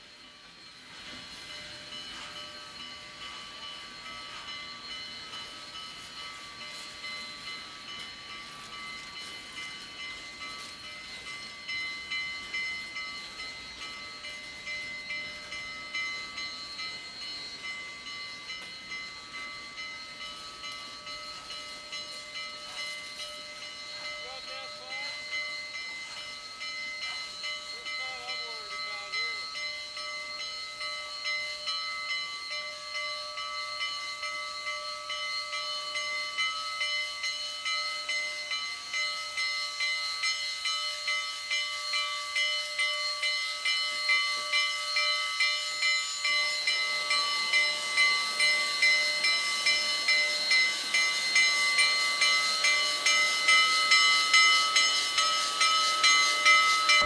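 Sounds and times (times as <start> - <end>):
pulsing whistling whine: 0.0 - 23.9
steam hissing: 0.0 - 57.0.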